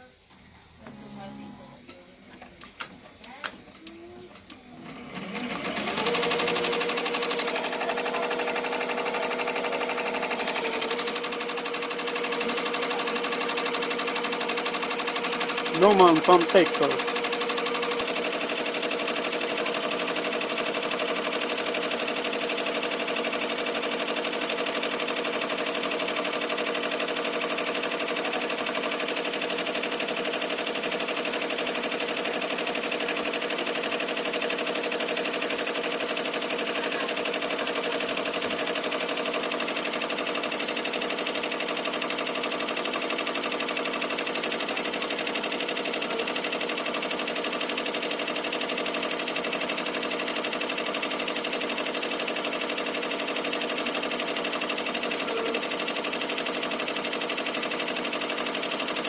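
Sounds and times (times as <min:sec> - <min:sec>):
embroidery machine clattering: 0:05.6 - 0:20.2.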